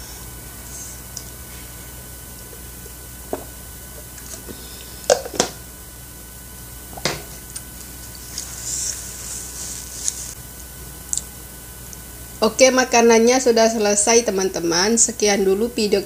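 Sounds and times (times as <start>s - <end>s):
plastic cup knocks on table: 5.1s - 5.6s, 7.0s - 7.3s
paper tissue rustling: 8.2s - 10.4s.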